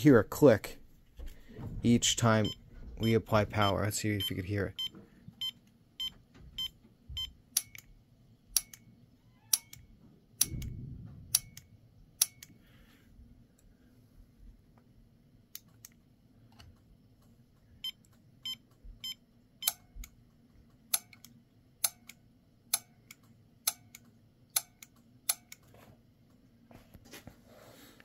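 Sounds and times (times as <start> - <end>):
solenoid clicks: 7.5 - 7.9, 8.6 - 8.9, 11.3 - 12.6, 20.9 - 25.7.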